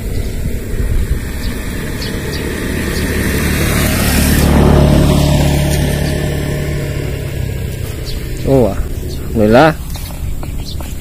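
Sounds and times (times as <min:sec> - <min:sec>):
vehicle passing by: 0:00.0 - 0:11.0.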